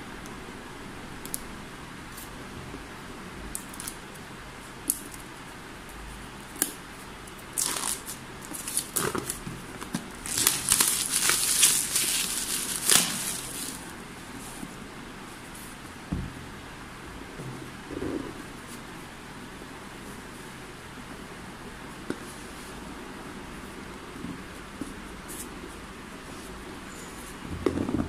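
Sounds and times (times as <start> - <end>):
plastic film crinkling: 7.5 - 14.0.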